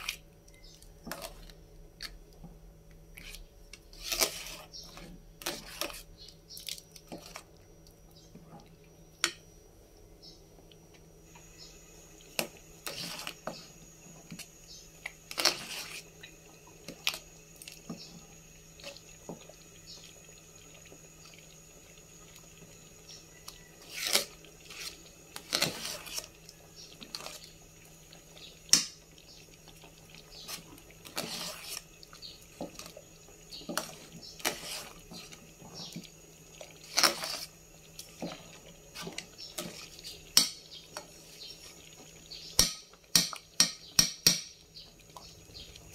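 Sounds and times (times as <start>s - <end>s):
porridge sloshing: 0.0s - 9.1s, 10.6s - 44.0s
spatula scraping a metal pot: 3.2s - 6.1s, 12.8s - 13.6s, 15.3s - 16.1s, 23.8s - 26.3s, 30.4s - 31.9s, 33.6s - 36.0s, 36.8s - 37.5s.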